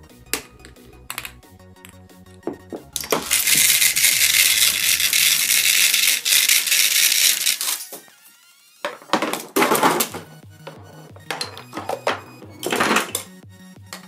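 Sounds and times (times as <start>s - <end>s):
faint background music: 0.0s - 14.0s
bead necklaces rattling on bowl: 3.0s - 7.9s.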